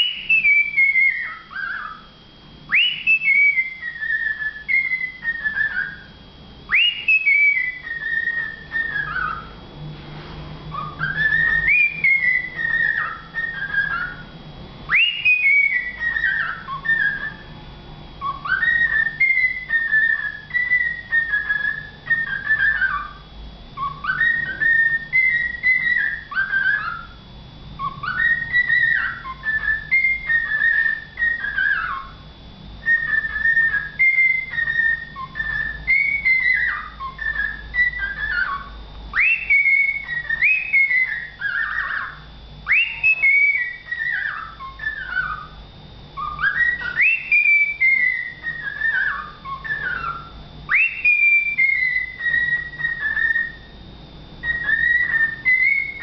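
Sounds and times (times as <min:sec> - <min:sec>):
cockatiel whistling a tune: 0:00.0 - 0:09.6, 0:10.7 - 0:17.6, 0:18.2 - 0:23.2, 0:23.8 - 0:27.2, 0:27.8 - 0:32.2, 0:32.8 - 0:45.6, 0:46.2 - 0:53.8, 0:54.4 - 0:56.0.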